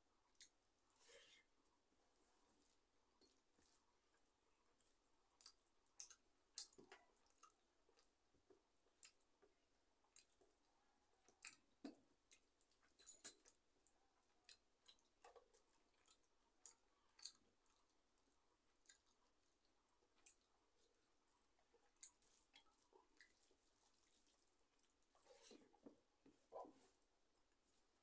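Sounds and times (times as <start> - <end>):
chewing: 4.7 - 27.0.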